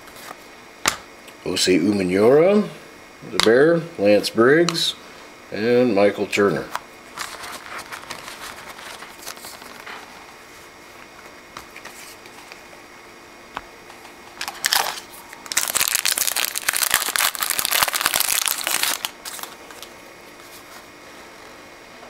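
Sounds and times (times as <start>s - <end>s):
wrapper crinkling: 7.1s - 10.1s, 14.4s - 20.0s
wrapper rustling: 7.1s - 10.1s, 14.4s - 20.0s.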